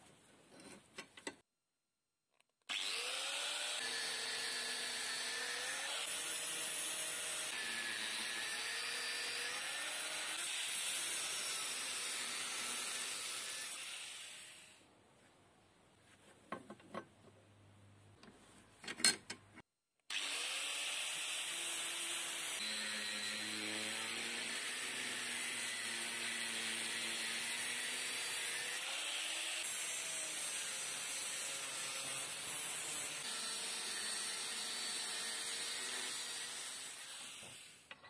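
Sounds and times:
angle grinder cutting steel: 2.7 - 14.6, 20.1 - 38.0.

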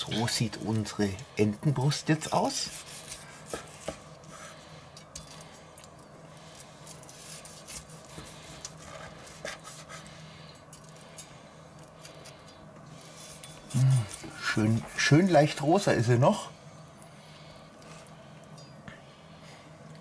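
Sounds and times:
knife sawing meat: 2.2 - 4.6, 6.8 - 10.1.

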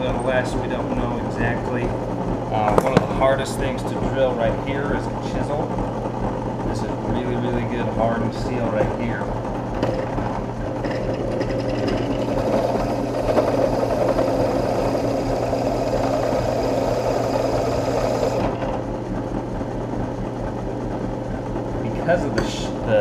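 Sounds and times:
drill press motor hum: 0.0 - 23.0
drill bit grinding into steel: 10.8 - 18.5.

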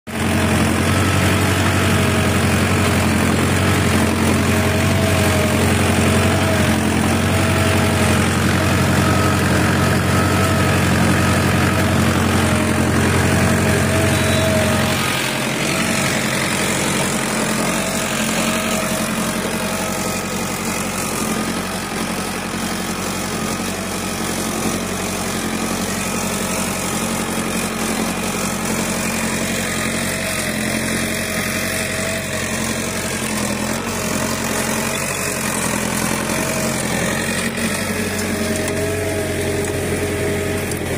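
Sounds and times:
tractor diesel engine under load: 0.1 - 40.9.

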